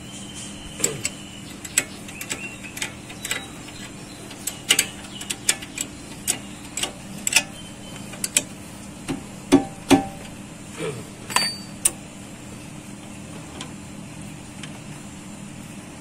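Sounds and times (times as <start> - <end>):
hand tools clicking on metal: 0.8 - 7.5.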